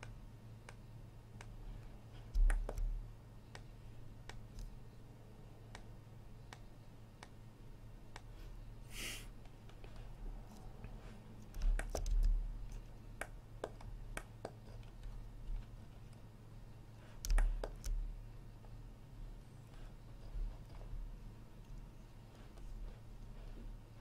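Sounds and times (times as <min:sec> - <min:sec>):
low steady hum: 0:00.0 - 0:24.0
mouse and keyboard clicks: 0:01.4 - 0:04.8, 0:10.5 - 0:15.2, 0:17.0 - 0:18.0.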